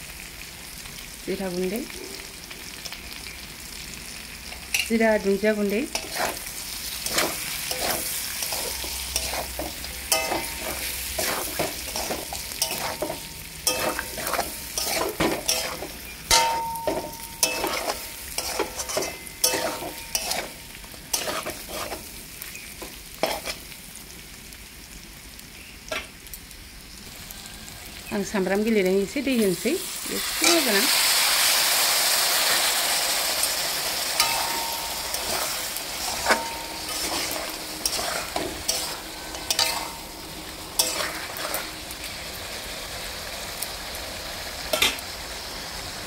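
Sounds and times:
food sizzling in a wok: 0:00.0 - 0:46.0
metal spatula scraping a pan: 0:05.9 - 0:22.2, 0:22.8 - 0:23.6, 0:33.4 - 0:41.9.

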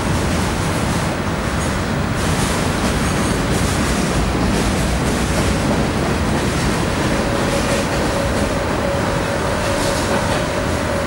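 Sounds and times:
train wheels rumbling on rail: 0:00.0 - 0:11.0
thin steady whine: 0:07.0 - 0:11.0.

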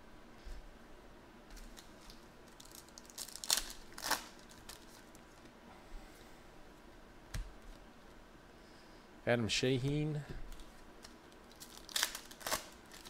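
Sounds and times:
foil wrapper crinkling: 0:01.5 - 0:05.5, 0:10.5 - 0:13.0
foil wrapper ripping: 0:01.6 - 0:05.3, 0:11.0 - 0:13.0.

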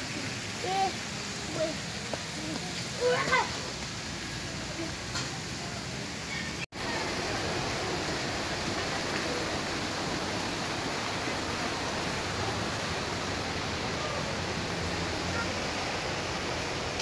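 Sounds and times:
steady rushing noise: 0:06.7 - 0:17.0.

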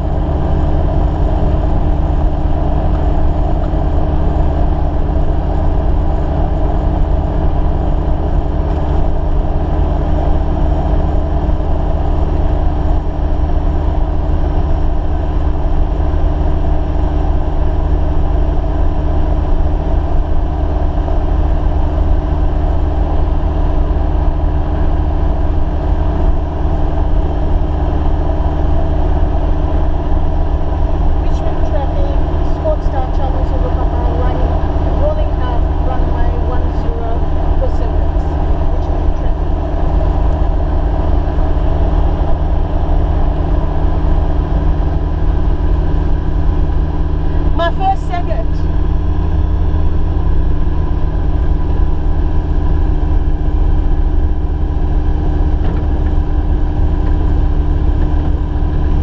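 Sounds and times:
propeller aircraft engine running: 0:00.0 - 0:59.0.

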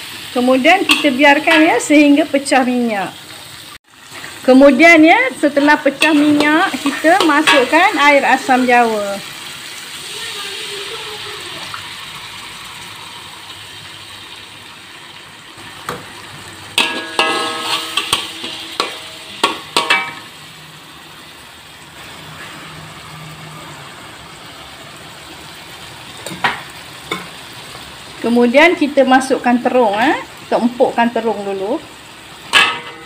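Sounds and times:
paste sizzling in hot oil: 0:00.0 - 0:33.0
metal spatula scraping wok: 0:00.7 - 0:02.0, 0:05.4 - 0:08.6, 0:16.7 - 0:20.3.

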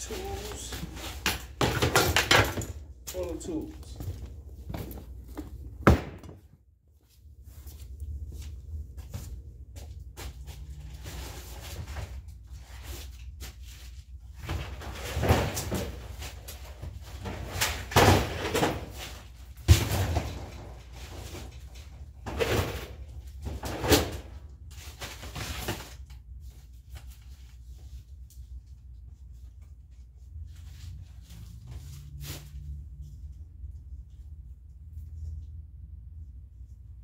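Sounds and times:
stored items being shifted: 0:00.0 - 0:09.4, 0:10.2 - 0:28.0.

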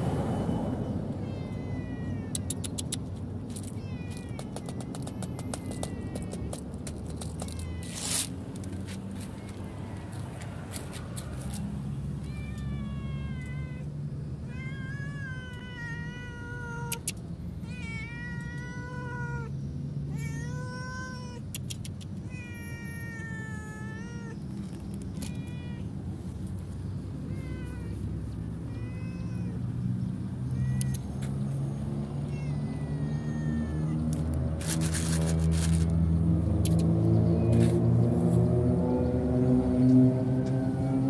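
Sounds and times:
kitten meowing: 0:01.2 - 0:03.0, 0:07.3 - 0:08.3, 0:14.5 - 0:19.5, 0:20.1 - 0:24.5, 0:27.2 - 0:29.6, 0:30.4 - 0:31.2, 0:32.2 - 0:35.8.

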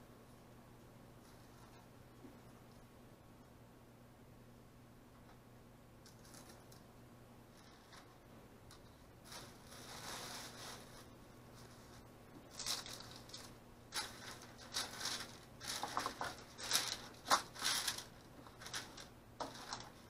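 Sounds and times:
paper and plastic bag rustling: 0:09.2 - 0:20.0
cardboard egg cartons moved: 0:12.5 - 0:20.0.

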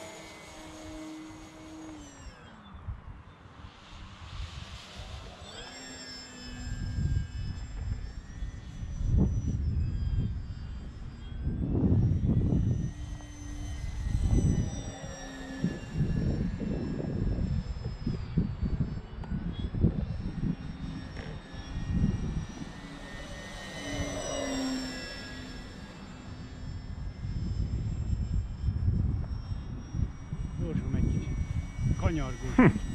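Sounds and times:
model plane motor whining: 0:00.0 - 0:32.9
wind on microphone: 0:06.5 - 0:24.6, 0:26.5 - 0:32.9.

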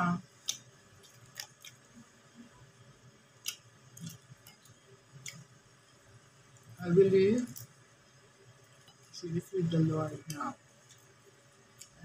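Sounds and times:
chewing food: 0:00.4 - 0:02.0.

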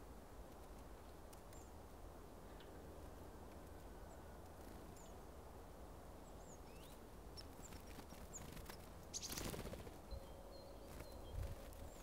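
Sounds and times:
songbirds chirping: 0:00.0 - 0:12.0
birds' wingbeats taking off: 0:07.6 - 0:10.1.

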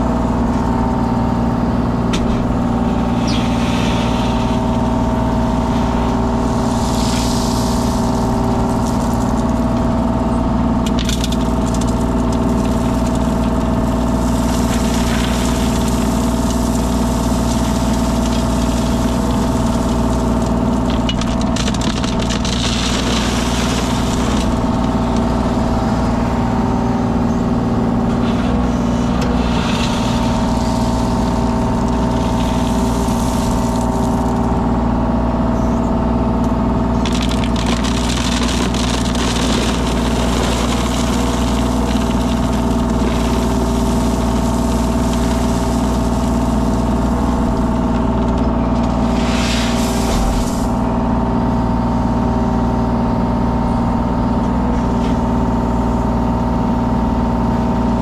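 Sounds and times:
machine engine running: 0:00.0 - 0:58.0
stone scraping and rattling: 0:10.8 - 0:25.9, 0:28.0 - 0:34.5, 0:36.9 - 0:50.9.

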